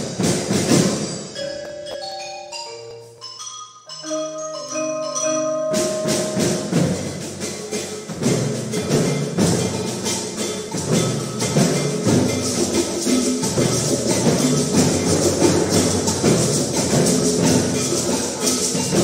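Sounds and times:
drums and percussion rhythm: 0.0 - 19.0
mallet keyboard notes: 0.0 - 19.0.

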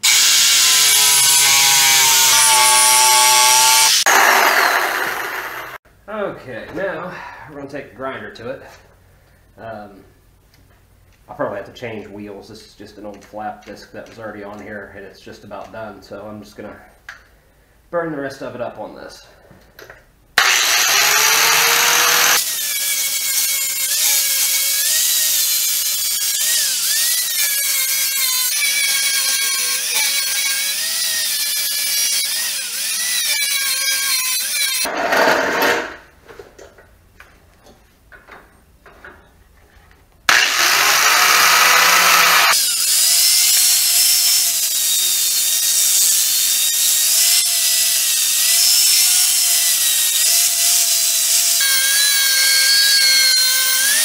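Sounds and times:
angle grinder grinding metal: 0.0 - 5.8, 20.4 - 36.0, 40.3 - 54.0.

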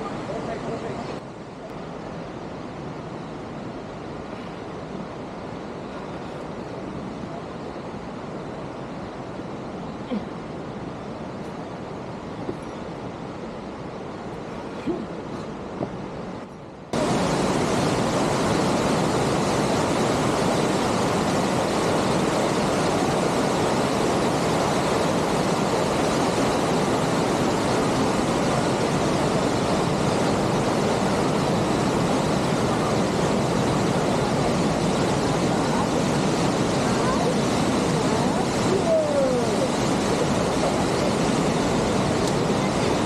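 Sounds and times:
rushing whitewater roar: 0.0 - 43.0.

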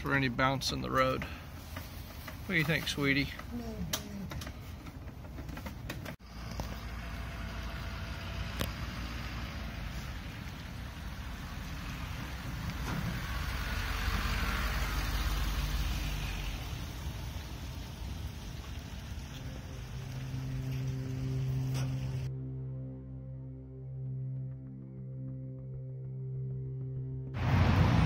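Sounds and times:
truck engine running: 0.0 - 22.3.

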